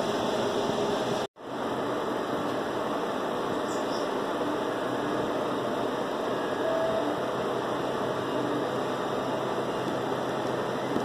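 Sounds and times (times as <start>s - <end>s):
steady noise with faint hum: 0.0s - 11.0s.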